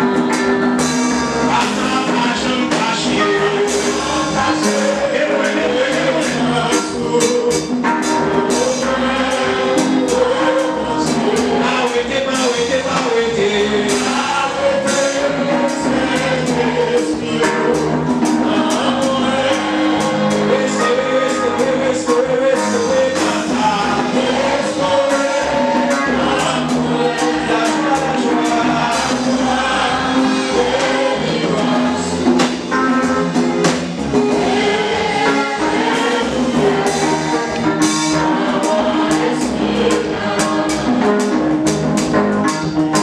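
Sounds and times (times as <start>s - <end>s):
voices singing together: 0.0s - 42.1s
conga drums: 0.0s - 43.0s
drum kit beat: 0.0s - 43.0s.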